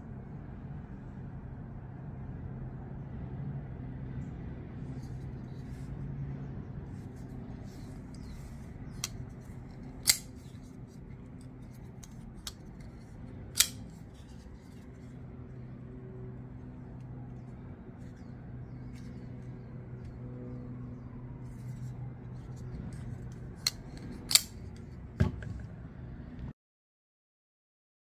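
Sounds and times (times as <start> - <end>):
low steady hum: 0.0 - 26.5
knife blade snapping clicks: 10.0 - 10.3, 13.6 - 13.9, 23.6 - 24.5.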